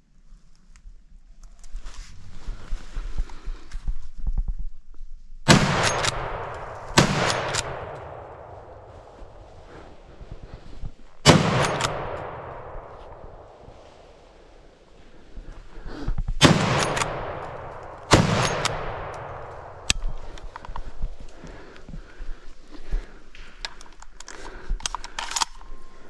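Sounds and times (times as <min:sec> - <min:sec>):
gunshots echoing through woods: 0:05.4 - 0:23.6.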